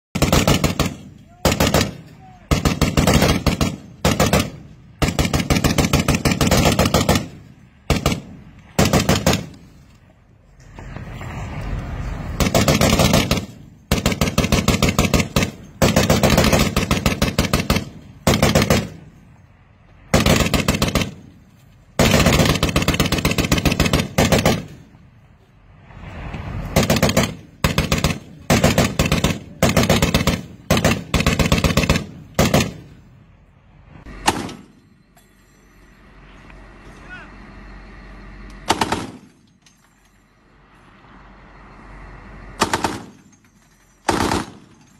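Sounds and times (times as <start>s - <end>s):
machine gun automatic fire bursts: 0.2s - 9.5s, 12.4s - 19.0s, 20.1s - 21.3s, 22.0s - 24.8s, 26.8s - 32.8s, 42.6s - 43.2s, 44.1s - 44.7s.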